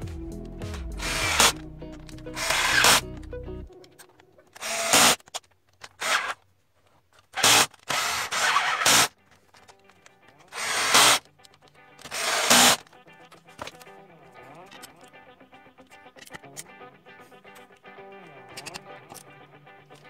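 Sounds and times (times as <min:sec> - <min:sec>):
cordless drill running: 0:01.0 - 0:01.6, 0:02.4 - 0:03.0, 0:04.6 - 0:05.2, 0:07.4 - 0:09.1, 0:10.5 - 0:11.2, 0:12.1 - 0:12.8.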